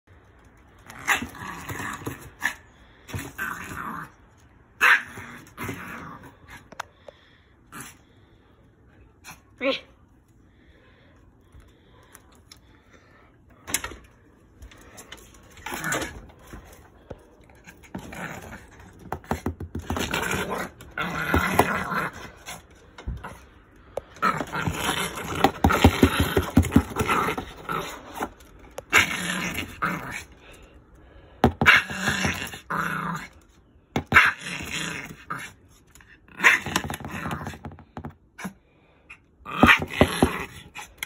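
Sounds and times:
dog scraping and biting cardboard: 17.9s - 22.3s, 24.2s - 28.3s, 39.5s - 40.7s.

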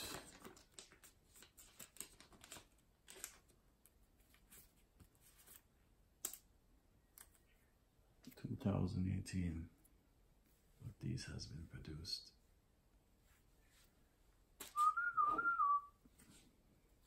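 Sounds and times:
trading cards clicking and rustling: 0.0s - 3.5s.

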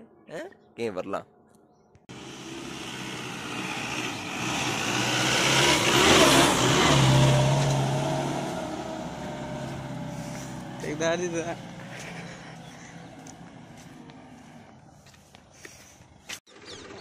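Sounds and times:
pickup truck driving past: 2.1s - 14.7s.

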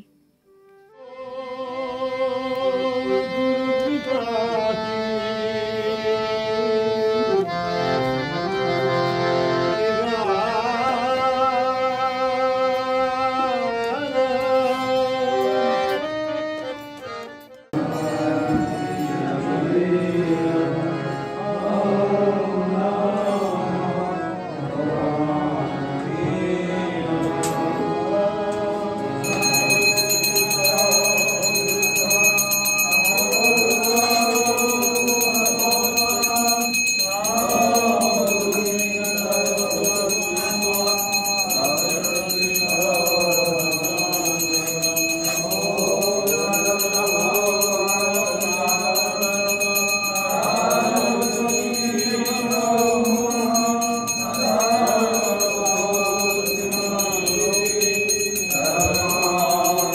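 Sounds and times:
voices singing a hymn in chorus: 17.7s - 59.9s
bell ringing: 29.2s - 59.9s.

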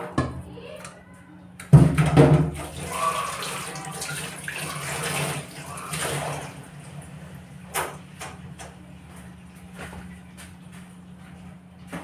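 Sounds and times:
tap water running into sink: 2.1s - 6.6s
hands rinsing under water: 2.6s - 6.6s.

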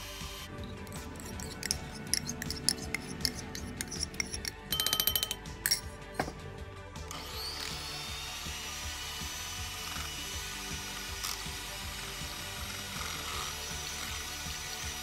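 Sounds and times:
electric hand mixer whirring: 0.0s - 4.5s, 7.1s - 15.0s
utensil scraping ceramic bowl: 0.6s - 5.9s.

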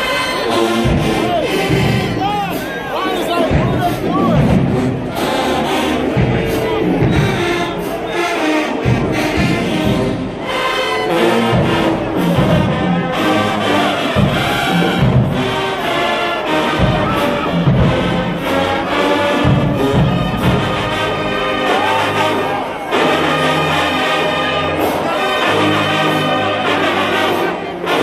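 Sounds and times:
marching band playing: 0.0s - 28.0s
drum hits: 0.7s - 5.4s, 6.0s - 8.0s, 14.2s - 15.7s, 16.7s - 21.3s.

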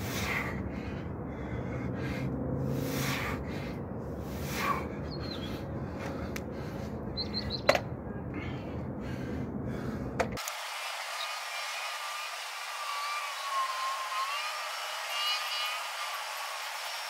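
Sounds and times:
man breathing hard: 0.0s - 10.4s
steady low hum: 0.0s - 10.4s
faint bird chirps: 5.1s - 5.6s, 7.2s - 7.7s.

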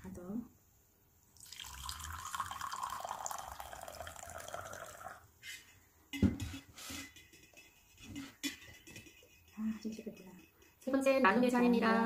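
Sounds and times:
tea pouring into a mug: 1.4s - 5.3s.

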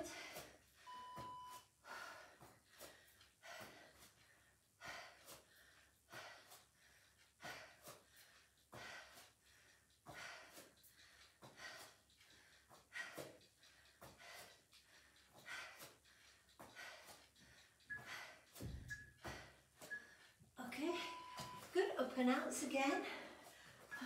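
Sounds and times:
person breathing hard: 0.0s - 0.9s, 1.7s - 20.6s, 23.0s - 24.0s
short electronic beep: 0.9s - 1.6s, 21.0s - 21.7s.

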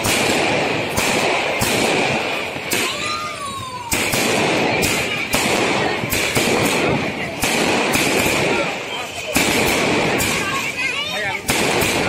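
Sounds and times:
firecrackers hissing and crackling: 0.0s - 12.0s
sharp firework bangs: 0.0s - 12.0s
falling firework whistle: 8.5s - 9.4s.

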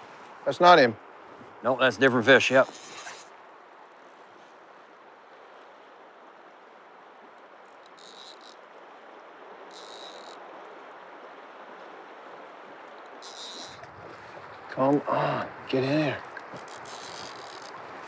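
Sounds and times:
river current rushing: 0.0s - 18.0s
fly reel drag buzzing: 2.4s - 3.3s, 7.8s - 8.6s, 9.7s - 10.4s, 13.2s - 13.9s, 16.4s - 18.0s.

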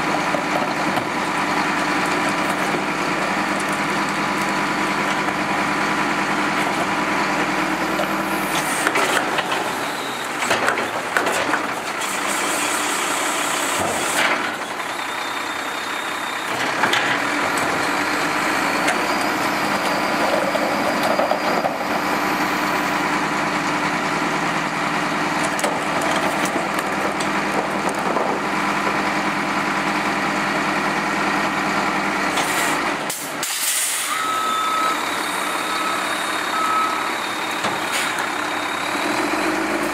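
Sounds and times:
diesel engine idling: 0.0s - 13.8s, 14.4s - 33.2s, 34.1s - 39.9s
reversing alarm beeping: 7.2s - 11.1s, 14.6s - 23.1s, 34.0s - 39.8s.

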